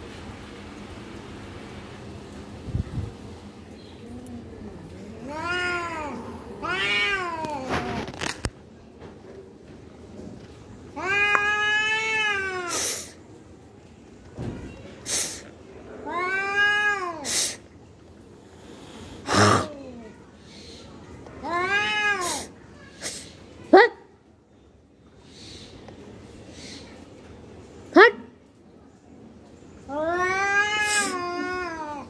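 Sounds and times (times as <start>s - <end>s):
cats caterwauling: 5.0s - 8.3s, 11.0s - 13.1s, 16.0s - 17.6s, 21.4s - 22.5s, 29.9s - 32.0s.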